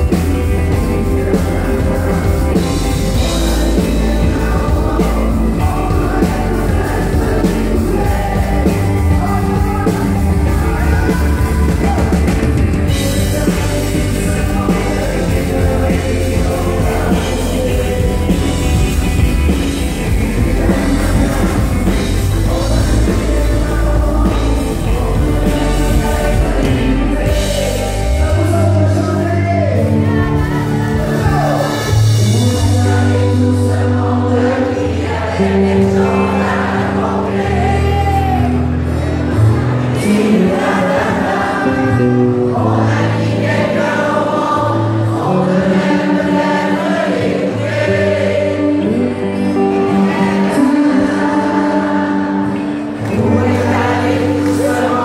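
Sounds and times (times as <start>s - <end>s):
heavy deep bass: 0.0s - 43.9s
acoustic and electric guitars: 0.0s - 55.0s
person singing: 0.0s - 55.0s.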